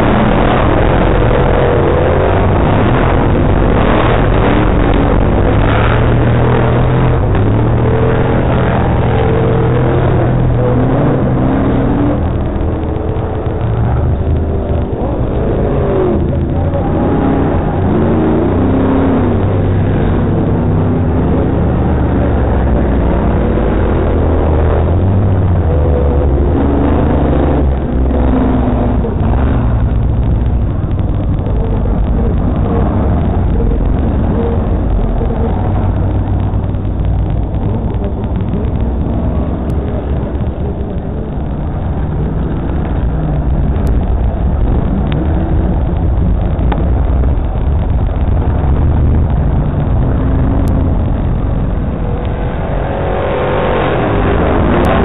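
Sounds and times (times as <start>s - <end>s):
racing car engines revving: 0.0s - 55.0s
steady low rumble: 0.0s - 55.0s.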